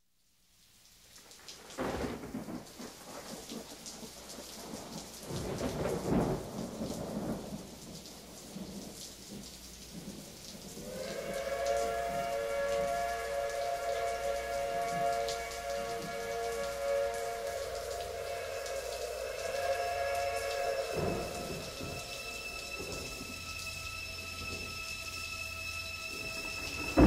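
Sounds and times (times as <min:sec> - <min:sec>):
steady rain: 0:00.0 - 0:27.0
thunder rumbling: 0:01.8 - 0:27.0
steady held tones: 0:10.8 - 0:27.0.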